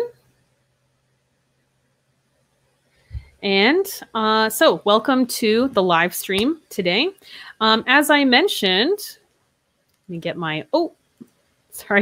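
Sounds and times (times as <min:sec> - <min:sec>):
faint low hum: 0:00.0 - 0:12.0
woman's voice: 0:03.4 - 0:09.2, 0:10.1 - 0:10.9, 0:11.7 - 0:12.0.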